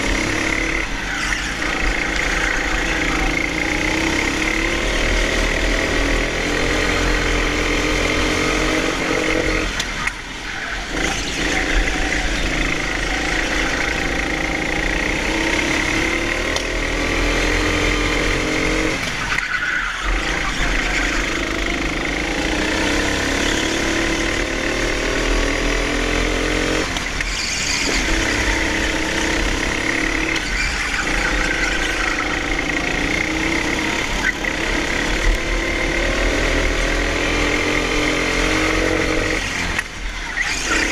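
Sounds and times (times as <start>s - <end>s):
go-kart engine revving: 0.0s - 40.9s.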